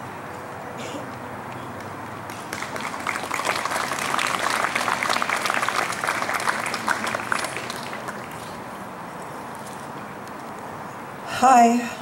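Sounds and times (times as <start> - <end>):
crowd applauding: 1.8 - 8.6.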